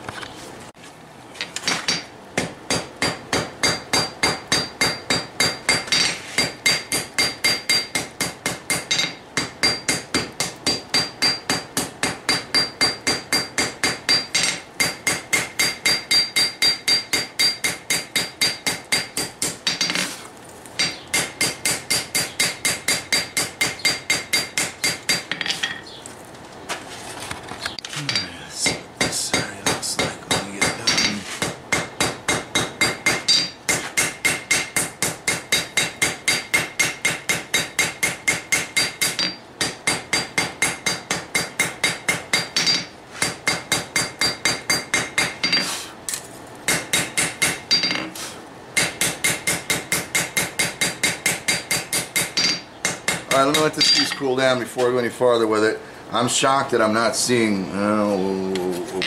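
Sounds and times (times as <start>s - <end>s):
hammer blows on anvil: 28.0s - 45.7s.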